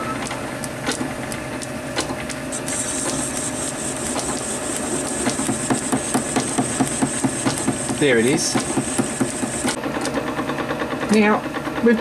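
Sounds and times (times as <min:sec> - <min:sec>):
lathe running: 0:00.0 - 0:09.8
light knocking of lathe tool: 0:03.1 - 0:09.8.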